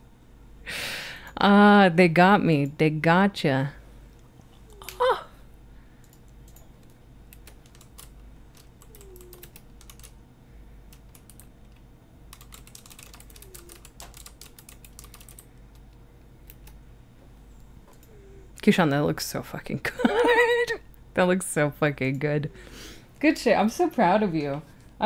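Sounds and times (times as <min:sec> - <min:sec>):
computer keyboard typing: 0:06.0 - 0:10.2, 0:10.9 - 0:16.8.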